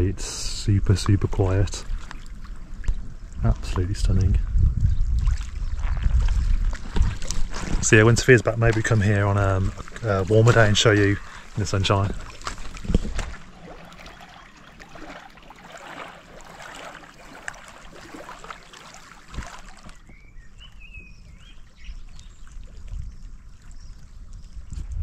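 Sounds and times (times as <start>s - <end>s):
small waves lapping on stony shore: 5.3s - 20.0s.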